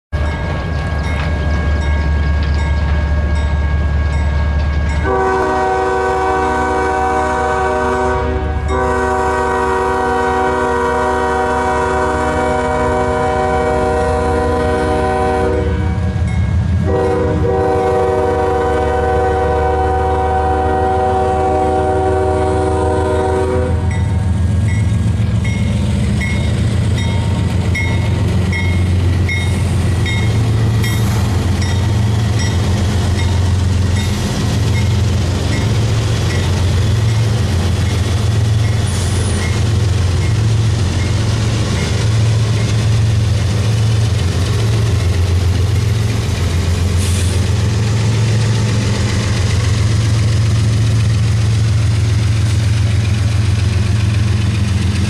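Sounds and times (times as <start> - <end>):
locomotive engine rumble: 0.2 - 55.0
locomotive air horn blasts: 5.0 - 16.2, 16.8 - 24.0.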